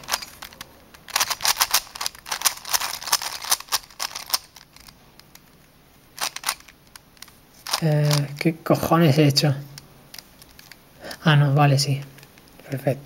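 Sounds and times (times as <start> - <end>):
puzzle cube layers clicking: 0.0 - 5.6, 6.2 - 8.6.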